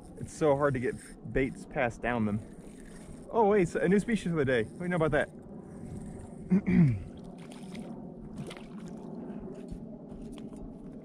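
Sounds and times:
water lapping against kayak hull: 7.2 - 9.1.

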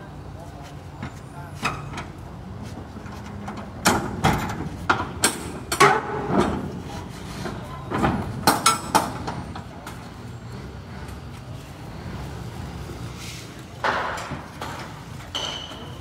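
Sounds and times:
metal door clanks and rattles: 3.0 - 6.8, 7.4 - 10.1, 13.8 - 16.0.

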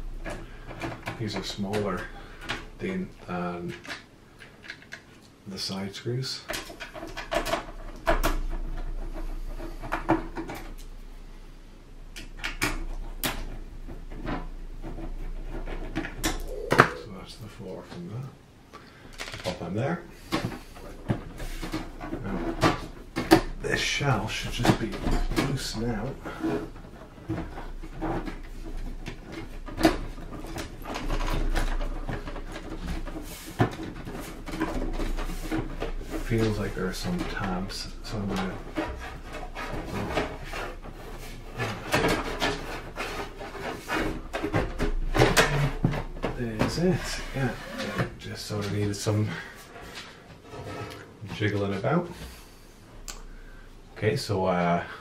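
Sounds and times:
metal case rubbing and scraping: 13.1 - 17.2, 20.2 - 51.5.

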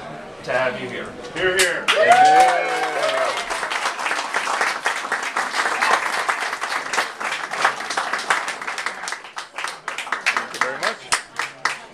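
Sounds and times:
crowd applauding: 1.6 - 11.9.

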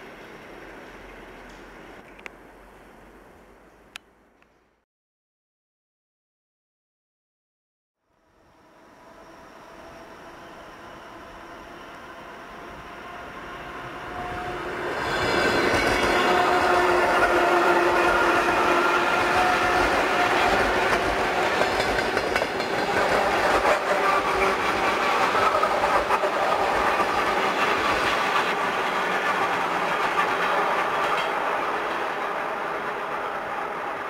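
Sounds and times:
train whine: 8.0 - 34.0
train wheels rushing on rail: 8.6 - 34.0
clatter over rail joints: 20.4 - 32.4.

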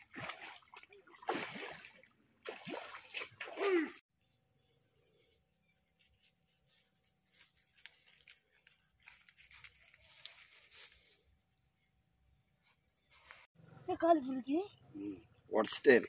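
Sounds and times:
faint ticks and rustles: 6.0 - 11.2.

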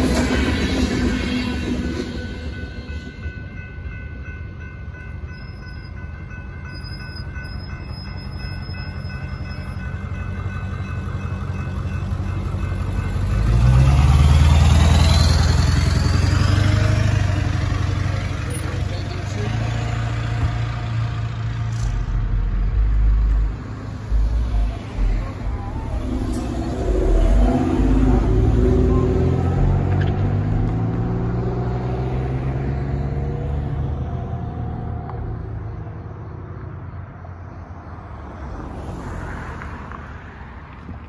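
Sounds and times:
railroad crossing bells ringing: 0.0 - 36.1
freight train rumble: 0.0 - 37.0
cars passing: 0.0 - 41.0
vehicle engine rumble with whine: 13.3 - 37.7.

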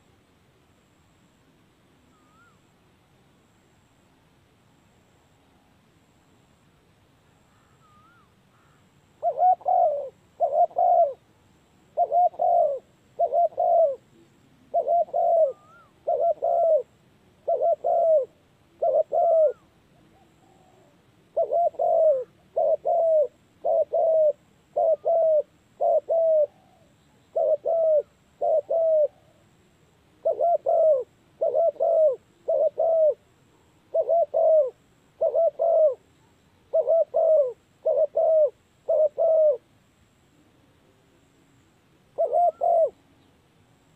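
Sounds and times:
dove cooing: 7.5 - 11.2, 11.9 - 29.4, 30.2 - 33.3, 33.9 - 39.7, 42.1 - 43.2.

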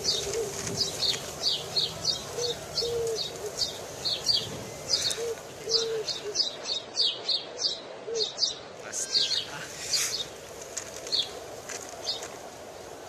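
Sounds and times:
dove cooing: 0.0 - 6.6, 8.0 - 8.4.

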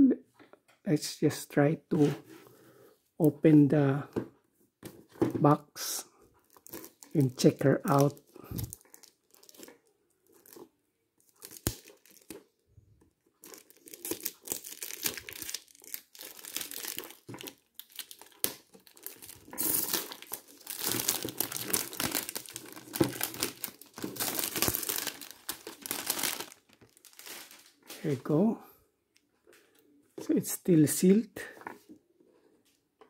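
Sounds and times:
plastic tearing: 6.4 - 12.5, 13.4 - 28.1
plastic bag crinkling: 6.4 - 12.6, 13.2 - 28.4.

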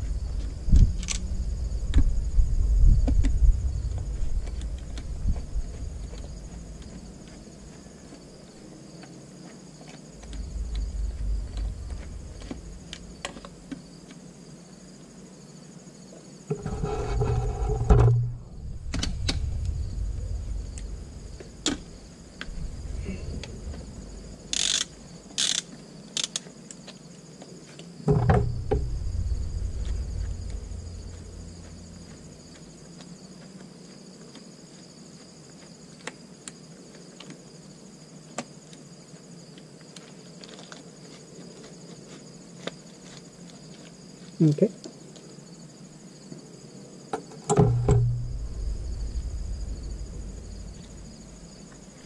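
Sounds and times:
low rumble: 0.0 - 7.6, 10.2 - 13.8, 16.5 - 25.3, 28.1 - 33.3, 47.6 - 52.0
hand ratchet turning: 24.5 - 26.5
tool clicking against metal: 24.6 - 26.5.

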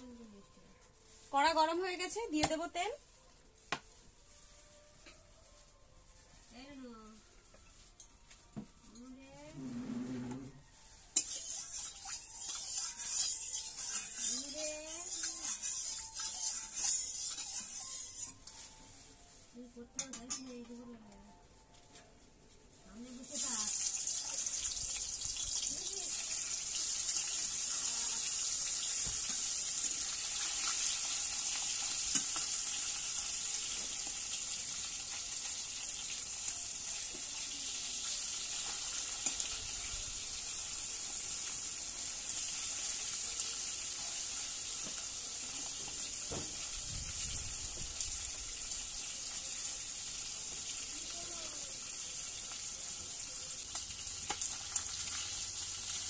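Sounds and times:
fish sizzling in hot oil: 10.7 - 18.6, 23.1 - 56.0
spatula scraping pan: 11.2 - 18.6.

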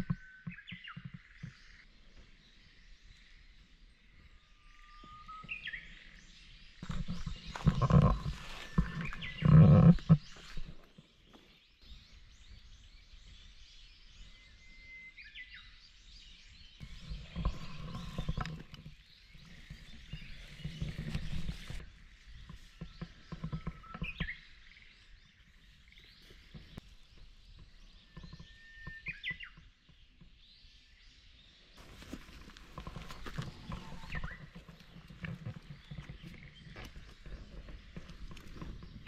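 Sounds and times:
tent rustling and knocking: 6.8 - 10.9, 16.8 - 24.2, 31.8 - 39.0.

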